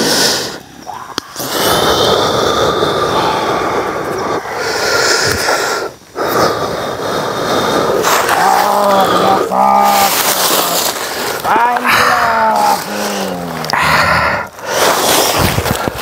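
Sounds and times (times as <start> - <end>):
loud rushing hiss: 0.0 - 16.0
man speaking: 8.4 - 13.7.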